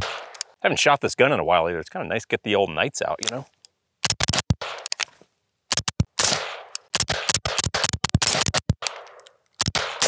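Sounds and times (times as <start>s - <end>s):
suppressed rifle rapid fire: 4.0s - 4.9s, 5.7s - 10.0s.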